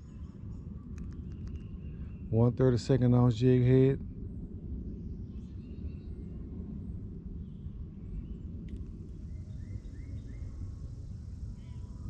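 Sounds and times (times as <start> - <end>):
faint bird chirps: 9.1 - 12.0.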